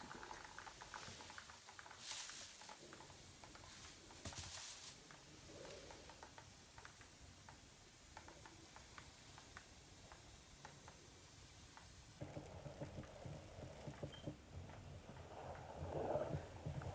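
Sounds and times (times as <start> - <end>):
faint small ticks: 0.0 - 11.1.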